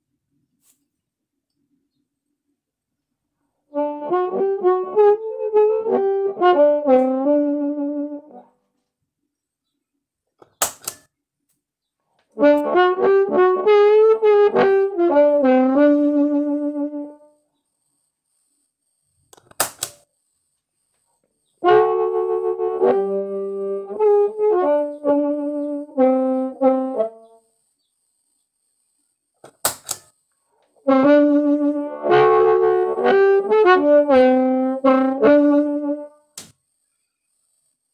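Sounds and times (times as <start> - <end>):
harmonica playing: 3.8 - 8.4, 12.4 - 17.2, 21.6 - 27.2, 30.9 - 36.2
pedal footswitch click: 10.4 - 11.0.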